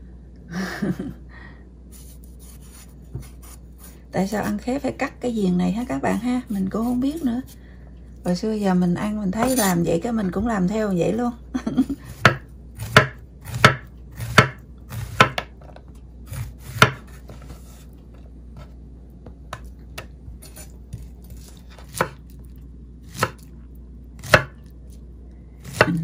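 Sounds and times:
knife slicing fruit: 1.9s - 4.6s, 9.4s - 9.8s, 12.1s - 15.5s, 16.2s - 18.0s, 19.5s - 22.4s, 23.1s - 23.5s.

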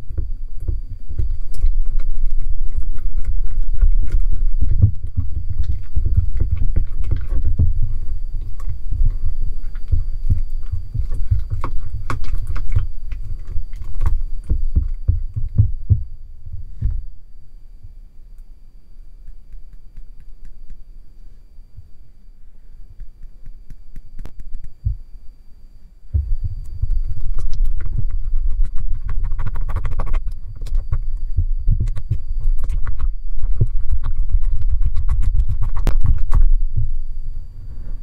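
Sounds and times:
spatula stirring thick slime: 26.8s - 36.4s.

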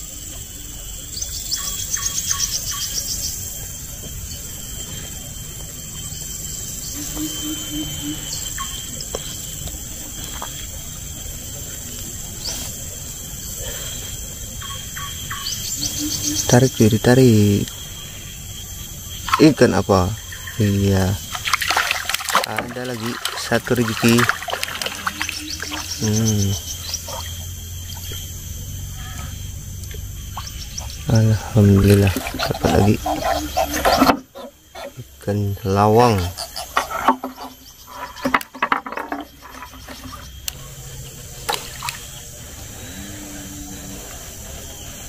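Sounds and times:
insects droning: 0.0s - 45.0s
steady low hum: 0.0s - 45.0s
whistled bird calls: 6.0s - 9.4s, 14.6s - 16.8s, 24.9s - 28.2s
water dripping from fishing line: 21.3s - 27.3s, 41.5s - 42.0s
man humming: 26.0s - 26.6s.

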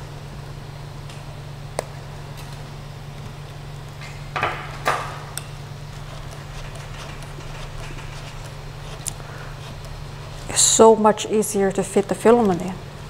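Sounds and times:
printer humming: 0.0s - 13.0s
filament rustling scrapes: 5.8s - 10.8s.

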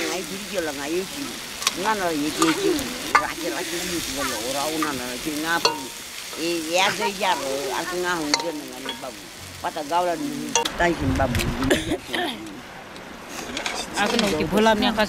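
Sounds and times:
vegetables sizzling in a wok: 0.0s - 10.8s
voices: 0.0s - 15.0s.

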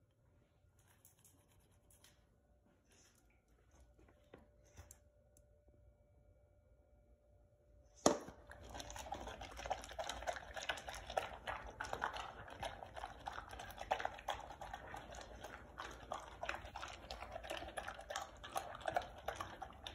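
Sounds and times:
dog lapping from metal bowl: 8.1s - 19.9s.

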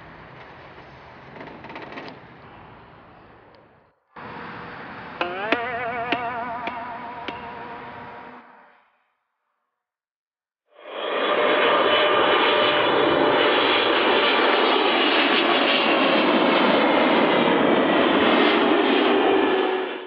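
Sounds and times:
jet airliner flying low: 0.0s - 8.8s, 10.7s - 20.0s.

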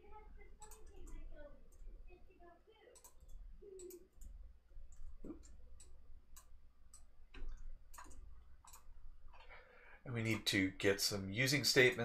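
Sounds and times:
low electrical hum: 0.0s - 12.0s
keyboard and mouse clicking: 0.6s - 1.9s, 2.9s - 9.5s.

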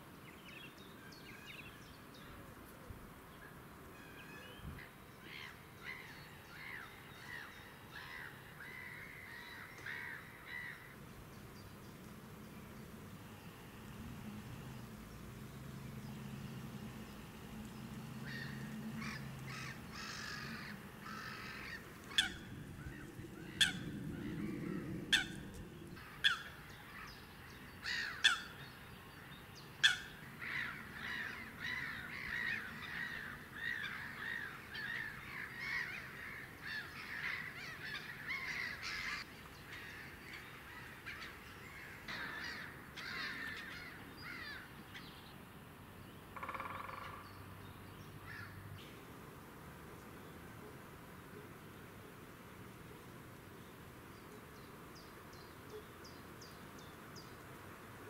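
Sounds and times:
sharp bird calls: 12.6s - 28.6s, 29.8s - 45.0s
buzzy bird call: 13.2s - 27.0s
bird chattering: 16.0s - 26.5s.

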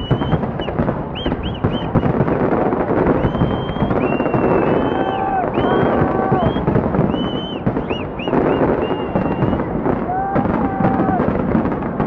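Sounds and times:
fireworks booming and crackling: 0.0s - 12.0s
fireworks whistling: 0.0s - 12.0s.

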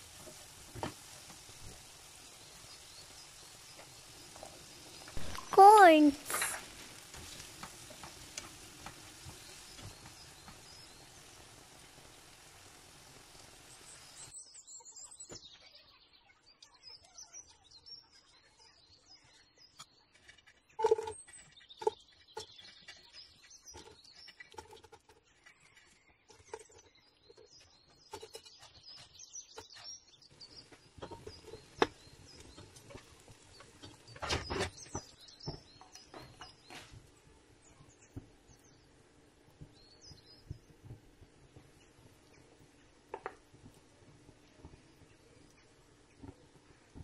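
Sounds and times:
faint steady hiss: 0.0s - 14.4s, 30.3s - 47.0s
small birds chirping: 0.0s - 47.0s
utensil scraping metal wok: 6.2s - 14.3s.

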